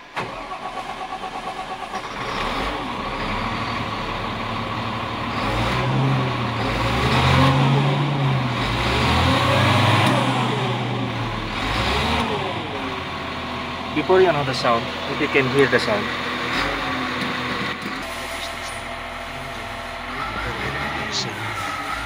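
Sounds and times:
diesel engine cranking and revving: 0.0 - 22.0.

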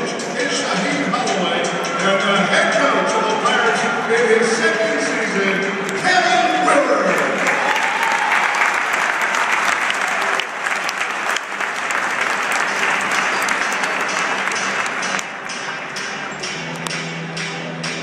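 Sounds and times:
crowd applause: 7.0 - 15.8.

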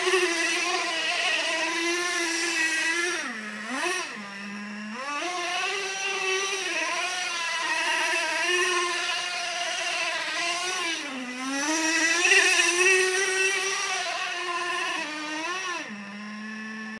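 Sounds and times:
radio-controlled car motor revving: 0.0 - 16.9.

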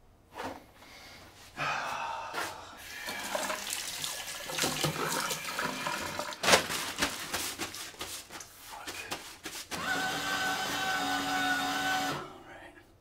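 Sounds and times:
faucet running: 3.0 - 6.4.

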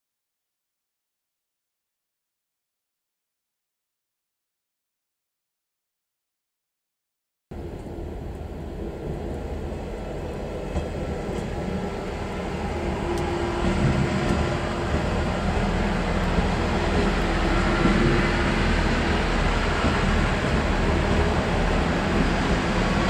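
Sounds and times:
diesel railcar engine rumble: 7.5 - 23.0.

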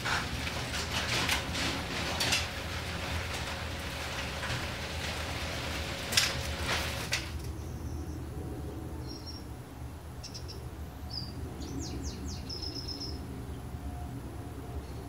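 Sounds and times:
garage door clanks: 0.0 - 7.5
garage door rolling up: 0.0 - 7.6.

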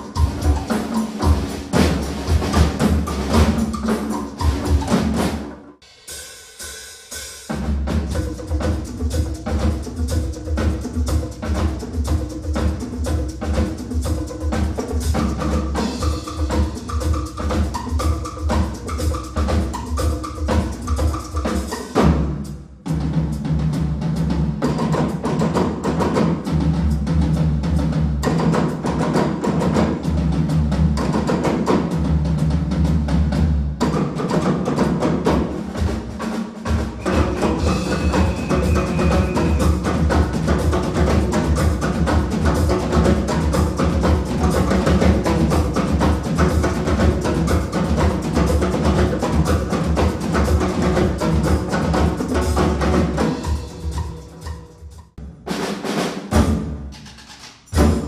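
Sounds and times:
congas: 0.0 - 58.0
drum kit: 0.0 - 58.0
timbales: 36.8 - 54.7.

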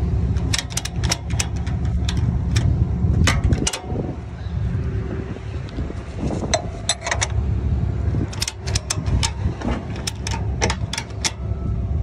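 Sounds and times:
farm vehicle rumbling: 0.0 - 12.0
rattles and knocks: 0.3 - 4.3, 6.4 - 7.5, 8.2 - 11.6.

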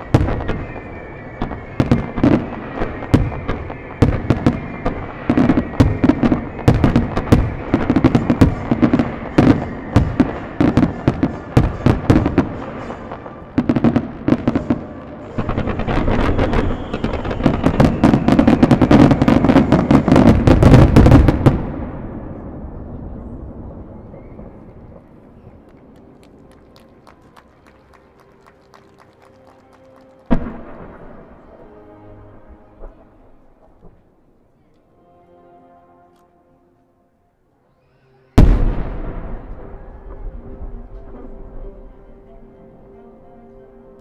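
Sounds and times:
fireworks rumble: 0.0 - 31.7.

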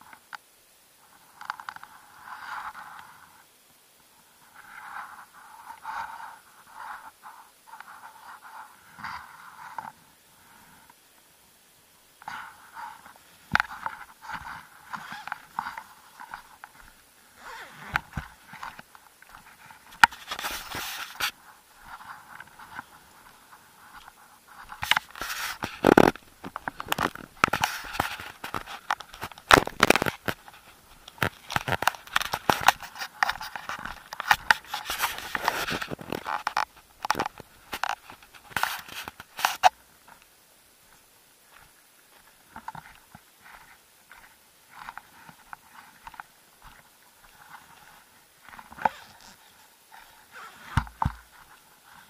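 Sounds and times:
rubbing on camera: 12.3 - 39.7.

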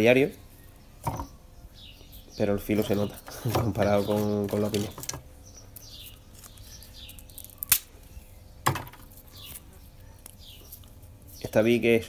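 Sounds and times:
faint bird chirps: 9.2 - 11.6.

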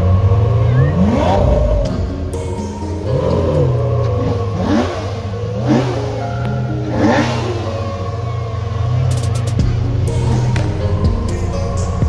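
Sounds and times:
car engine running at low speed: 0.0 - 12.0
engine throttle blips: 0.0 - 12.0.

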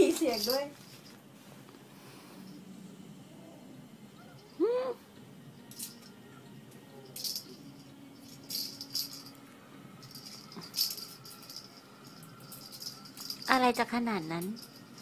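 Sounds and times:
cat toy ball rattle jingling: 0.0 - 1.1, 7.0 - 9.4, 10.0 - 15.0.

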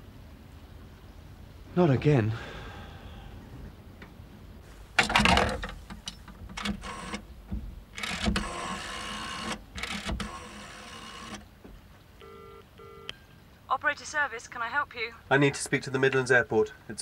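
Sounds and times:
rotary telephone dial whirring: 6.6 - 7.2, 8.0 - 11.4.

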